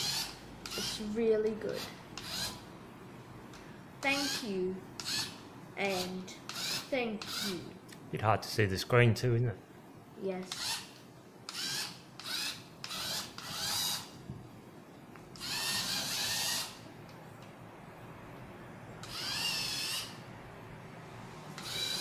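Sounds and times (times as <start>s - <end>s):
robot motors whining: 0.0s - 2.6s, 11.5s - 14.1s, 15.4s - 16.8s, 19.0s - 20.2s, 21.5s - 22.0s.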